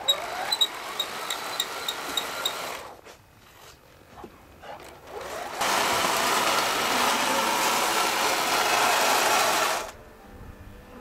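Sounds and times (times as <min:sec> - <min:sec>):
toy bulldozer motor whirring: 0:00.0 - 0:03.0, 0:05.0 - 0:10.0.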